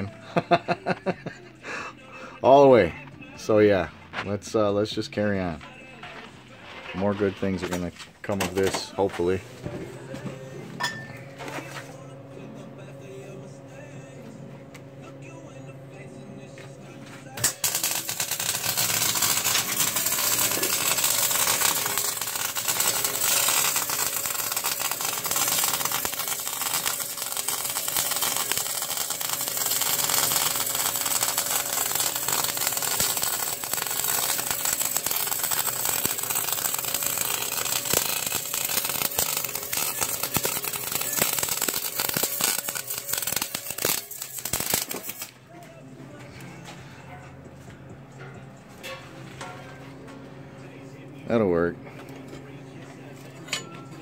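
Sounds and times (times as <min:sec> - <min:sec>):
welding arc crackling: 0:17.4 - 0:45.4.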